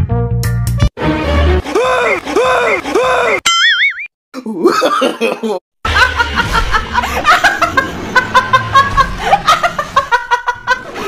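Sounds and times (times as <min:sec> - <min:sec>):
woman laughing hard: 0:04.6 - 0:11.0.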